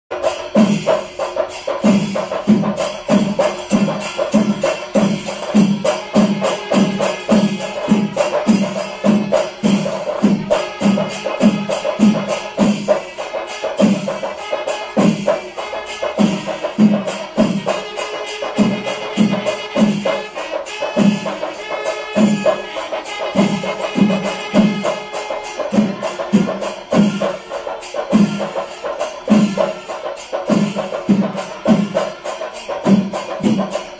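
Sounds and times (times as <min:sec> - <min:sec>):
hand cymbals clashing: 0:00.1 - 0:33.9.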